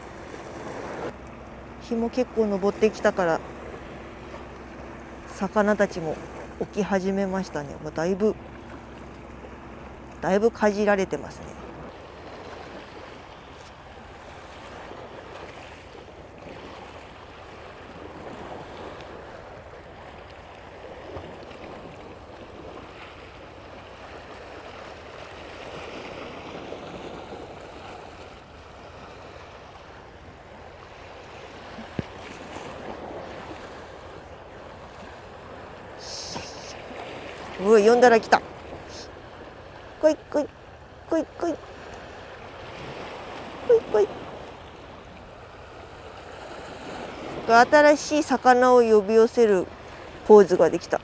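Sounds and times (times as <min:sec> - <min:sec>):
waves washing on rocky shore: 0:11.3 - 0:48.6.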